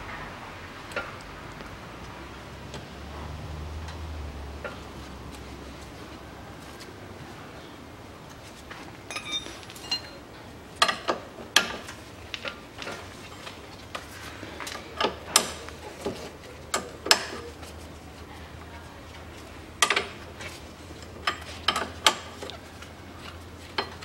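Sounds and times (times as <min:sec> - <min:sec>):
tools and metal parts clinking: 0:09.0 - 0:13.7.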